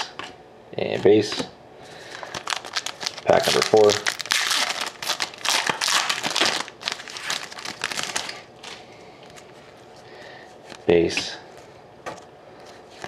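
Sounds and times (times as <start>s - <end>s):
foil wrapper tearing and crinkling: 2.0s - 9.4s.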